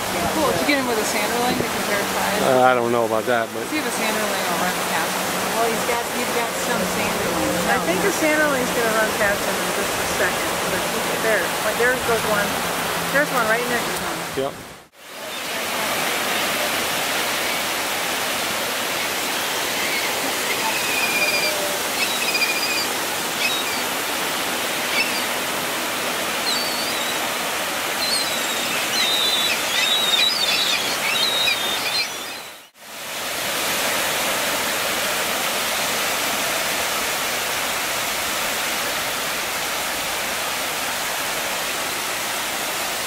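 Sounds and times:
ocean surf: 0.0s - 43.0s
wind: 0.0s - 43.0s
short high bird calls: 19.3s - 23.9s, 24.8s - 25.3s, 26.4s - 27.2s, 28.0s - 32.7s.

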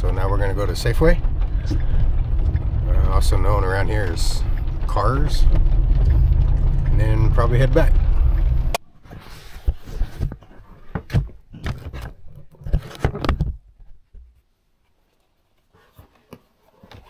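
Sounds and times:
sharp knocks: 0.0s - 8.8s
vehicle engine and road rumble: 0.0s - 8.8s.

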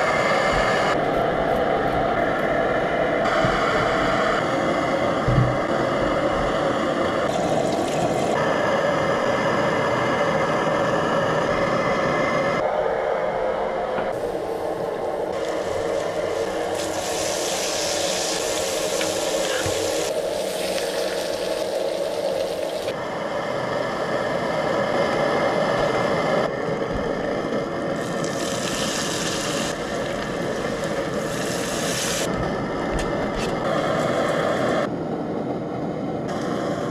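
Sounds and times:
steady hum with held tones: 0.0s - 36.9s
bacon and onion sizzling: 15.4s - 22.9s, 28.0s - 32.3s.

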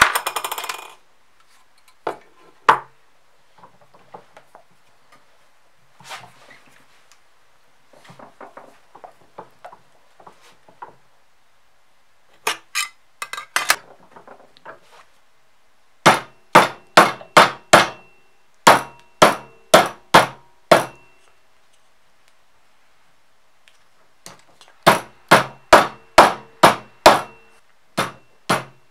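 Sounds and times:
hammer blows on leather over vise: 18.7s - 21.0s, 24.8s - 28.8s.

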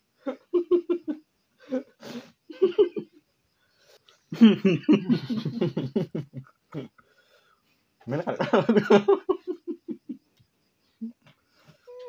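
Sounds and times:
men laughing: 0.2s - 1.9s, 2.5s - 3.2s, 4.3s - 7.0s, 8.1s - 10.2s.

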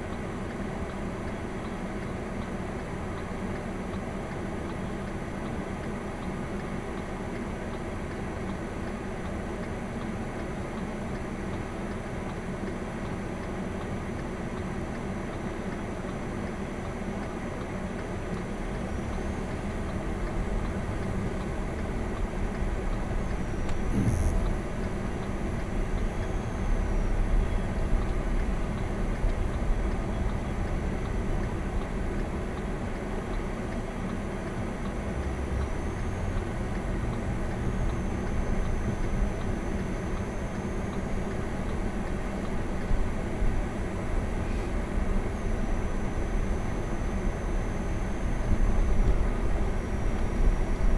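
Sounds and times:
car engine and tyre noise: 0.0s - 50.9s
short thump: 23.9s - 24.5s.

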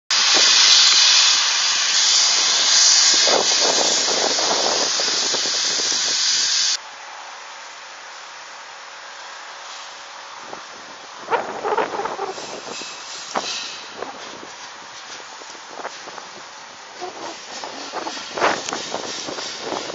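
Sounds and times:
helicopter turbine hissing: 0.1s - 6.8s, 10.8s - 19.9s.

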